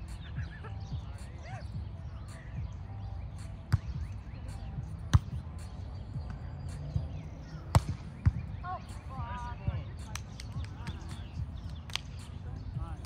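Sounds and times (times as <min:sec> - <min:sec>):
volleyball hard slaps: 0:07.7 - 0:08.4.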